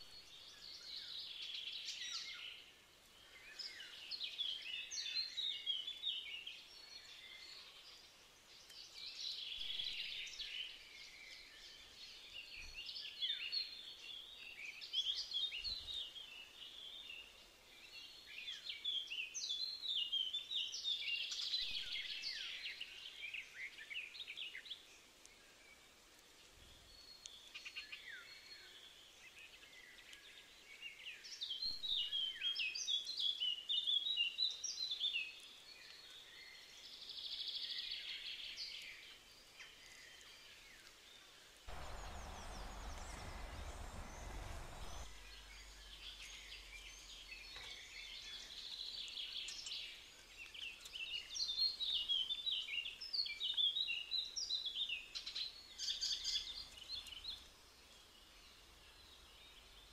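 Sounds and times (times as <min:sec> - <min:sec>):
songbirds singing and calling: 0:00.0 - 0:59.9
low noise: 0:41.6 - 0:49.0.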